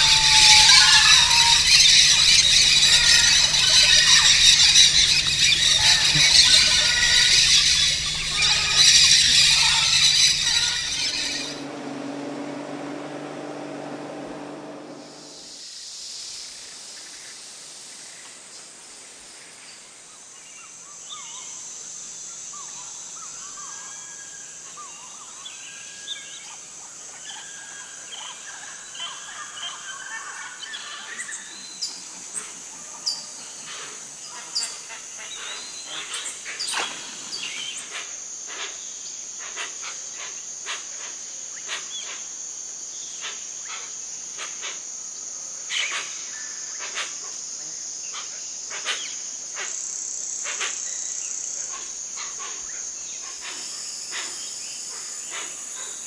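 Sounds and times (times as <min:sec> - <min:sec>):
bird calls: 0:00.0 - 0:13.0
high-pitched insect drone: 0:00.0 - 0:13.1.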